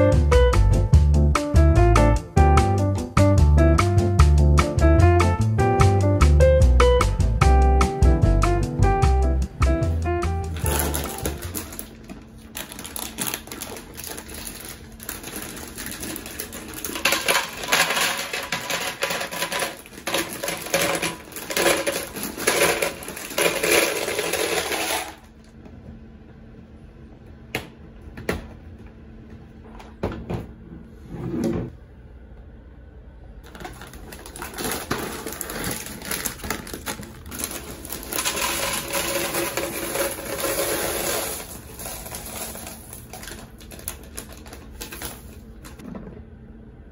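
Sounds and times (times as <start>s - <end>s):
cereal pouring into plastic canister: 10.6s - 25.3s, 33.5s - 45.4s
dry pasta pouring into plastic canister: 10.6s - 25.3s, 33.5s - 45.4s.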